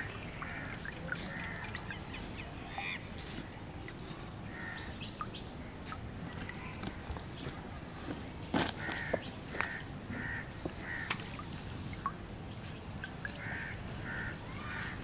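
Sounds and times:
crows cawing: 4.5s - 5.0s, 8.8s - 11.1s, 13.4s - 15.0s.

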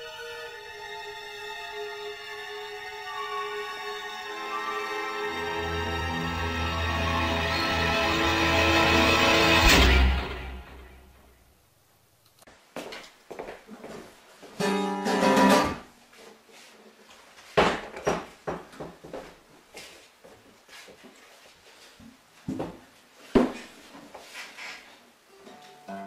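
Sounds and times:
acoustic guitar strumming: 3.1s - 11.2s, 14.6s - 15.9s, 25.5s - 26.0s.

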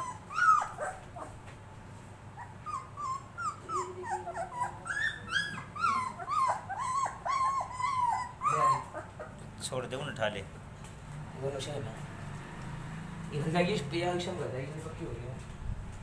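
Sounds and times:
puppy whimpering: 0.0s - 1.4s, 2.3s - 9.5s.

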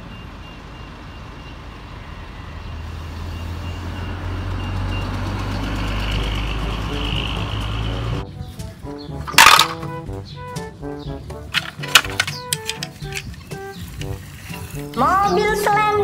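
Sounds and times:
bus engine rumble: 0.0s - 8.9s.

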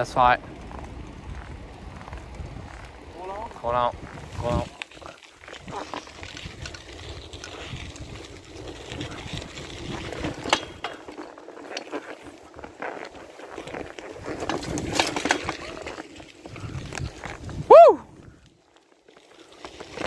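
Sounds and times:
wind on microphone: 0.0s - 10.9s, 13.6s - 18.5s
tyres crunching on gravel: 0.0s - 17.7s, 18.6s - 20.0s
bike rattling and clicking: 0.0s - 20.0s.

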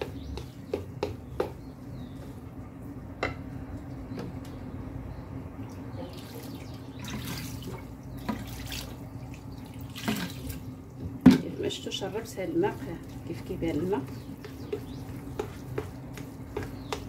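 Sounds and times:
water pouring from a pitcher: 6.2s - 10.6s.

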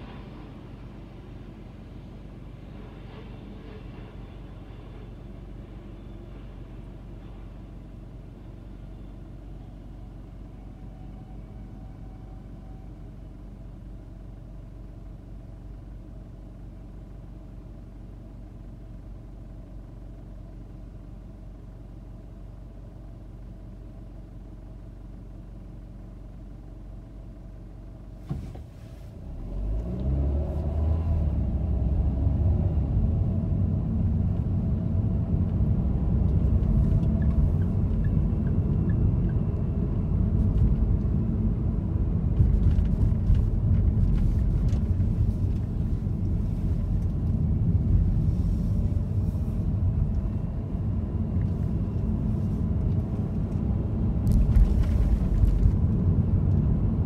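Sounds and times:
road noise: 0.0s - 12.5s, 28.2s - 57.0s
car engine idling: 11.8s - 28.2s.

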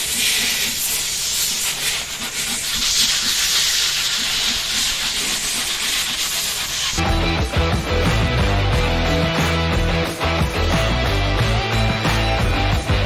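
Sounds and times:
sanding hiss: 0.0s - 7.1s
rock music: 7.0s - 13.0s.

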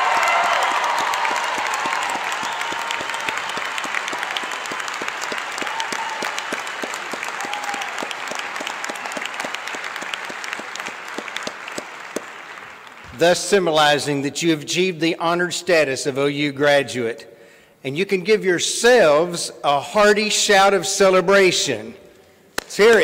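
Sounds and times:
crowd applauding: 0.0s - 13.6s.

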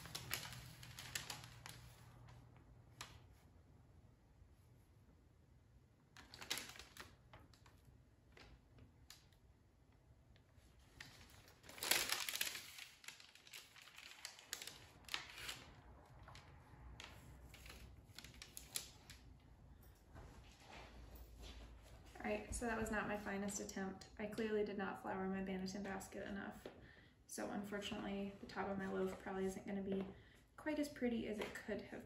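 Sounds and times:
parchment paper rustling: 0.0s - 3.5s, 6.2s - 9.4s, 10.4s - 19.4s.

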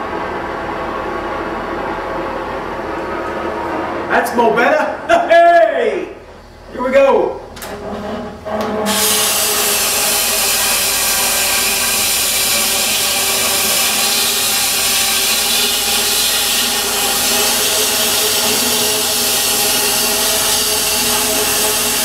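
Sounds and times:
cutting torch hissing: 8.9s - 22.0s.

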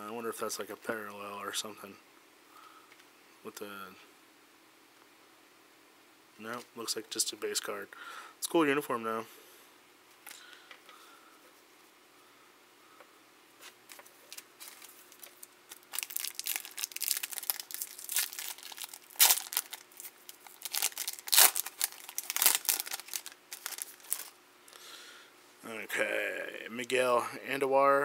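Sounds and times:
foil wrapper tearing and crinkling: 13.9s - 24.4s.

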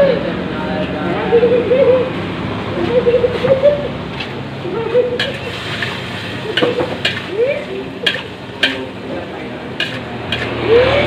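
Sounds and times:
frying sizzle: 5.1s - 11.0s
spatula scraping wok: 5.1s - 11.0s
spatula clacking on wok: 5.2s - 10.8s.

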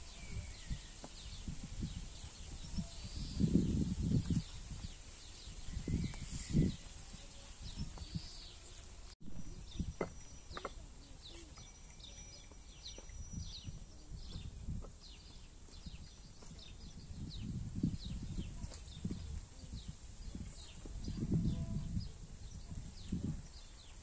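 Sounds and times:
wind rumbling on microphone: 0.0s - 10.5s, 12.8s - 24.0s
small birds chirping: 0.0s - 24.0s.

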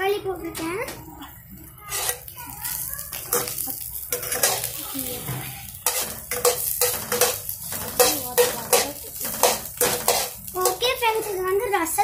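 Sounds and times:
okra sizzling in oil: 1.2s - 12.0s
ladle scraping frying pan: 1.9s - 2.3s, 3.3s - 11.6s.

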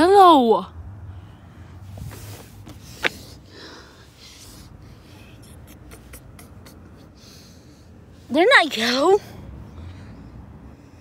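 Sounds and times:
phone rustling against clothing: 1.9s - 3.4s.

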